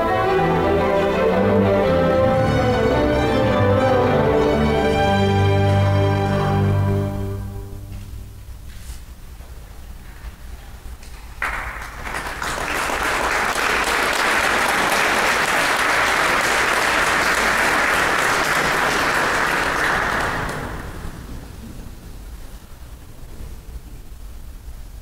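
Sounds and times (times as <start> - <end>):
audience applauding: 11.3 - 21.6.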